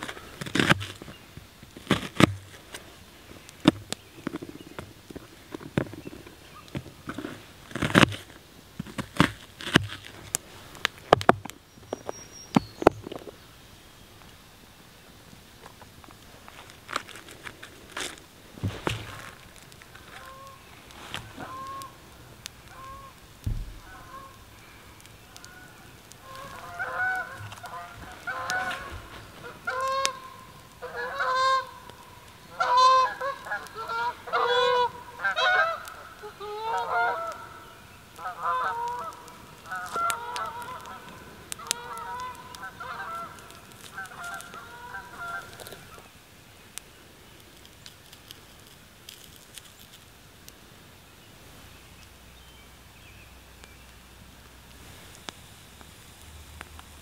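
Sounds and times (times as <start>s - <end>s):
faint clicks and rustles: 0.0s - 34.4s, 38.1s - 52.2s, 53.5s - 57.0s
geese honking: 18.8s - 46.1s.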